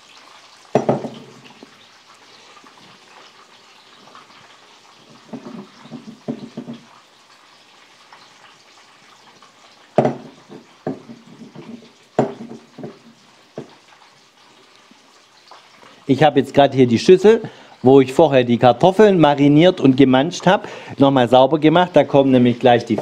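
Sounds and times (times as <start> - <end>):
faint steady hiss: 0.0 - 23.0
glass bowl knocking on wood: 0.7 - 1.3, 5.3 - 6.9, 10.0 - 13.7.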